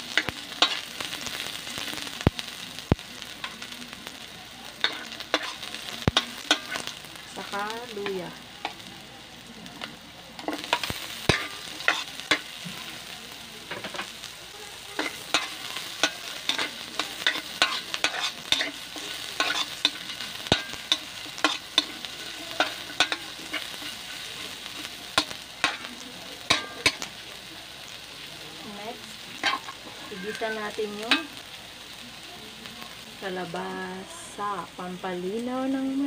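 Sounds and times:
food sizzling in oil: 0:00.0 - 0:36.0
metal spoon scraping wok: 0:04.8 - 0:08.0, 0:10.4 - 0:12.9, 0:15.0 - 0:25.9, 0:29.4 - 0:31.4.

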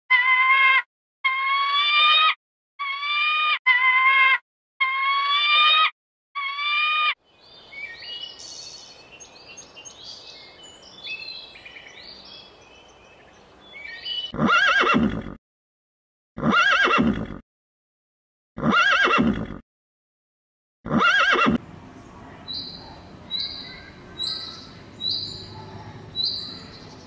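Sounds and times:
small birds chirping: 0:07.2 - 0:14.4, 0:21.6 - 0:27.0
soft outdoor hiss: 0:07.3 - 0:13.8, 0:21.6 - 0:27.0
kestrel whining calls: 0:22.5 - 0:27.0.

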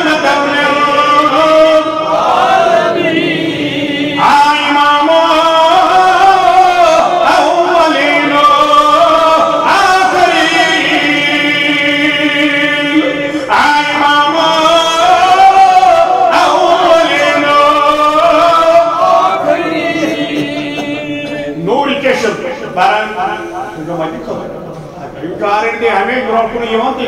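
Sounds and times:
man chanting: 0:00.0 - 0:24.5.

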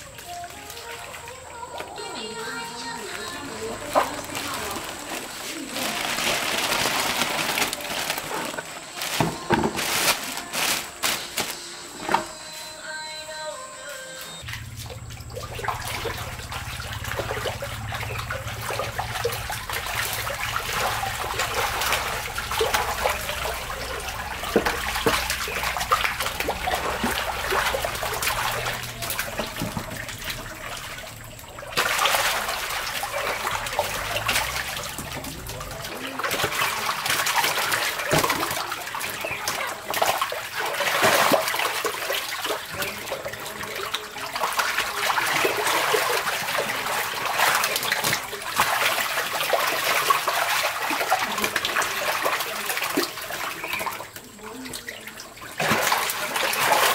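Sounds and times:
water trickling: 0:00.0 - 0:11.6, 0:14.4 - 0:56.9
fish thrashing and splashing: 0:00.0 - 0:12.2, 0:14.4 - 0:56.9
low steady hum: 0:14.4 - 0:36.3.

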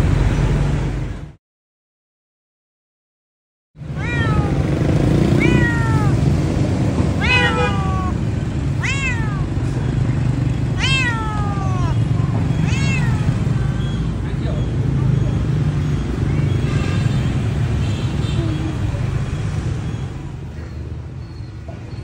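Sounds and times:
cat meowing: 0:03.9 - 0:04.7, 0:05.3 - 0:06.4, 0:07.1 - 0:09.8, 0:10.7 - 0:14.0.

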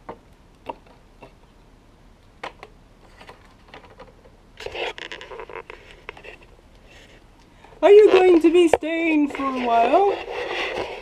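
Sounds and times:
clatter of handling noise: 0:02.4 - 0:07.2.

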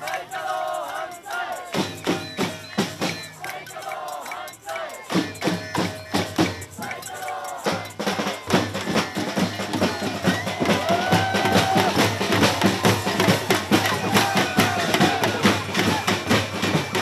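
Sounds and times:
hand drums playing fast rhythm: 0:00.0 - 0:17.0.

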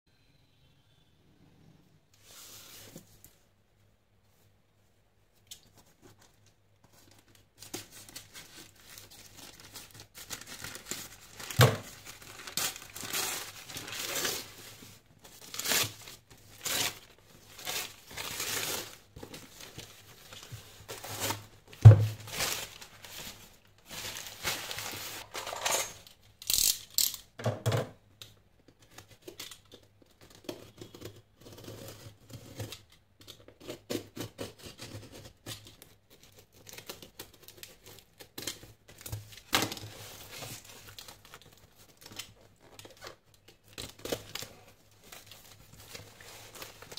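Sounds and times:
paper tearing and crumpling: 0:07.7 - 0:21.5, 0:22.1 - 0:25.5.

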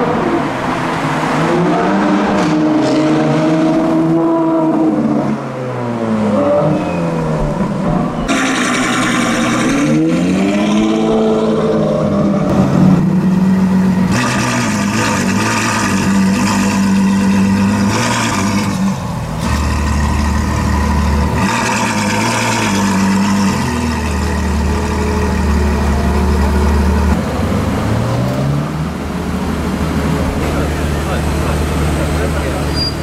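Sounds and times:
car engine idling and revving: 0:00.0 - 0:33.0.

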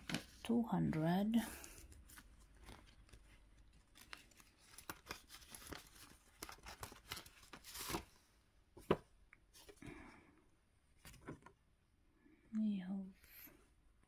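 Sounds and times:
plastic and paper rustling: 0:00.0 - 0:08.1.

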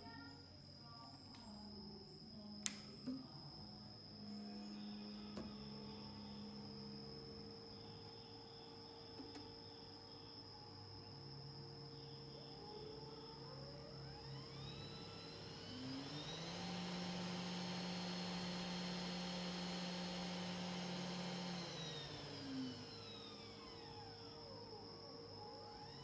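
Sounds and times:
spindle motor whining: 0:04.2 - 0:10.0, 0:11.2 - 0:26.0.

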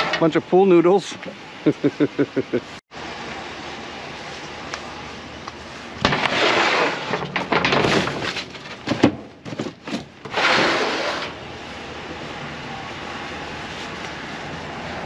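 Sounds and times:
cardboard scraping and rustling: 0:06.0 - 0:11.4
clicks and knocks: 0:07.0 - 0:10.1.

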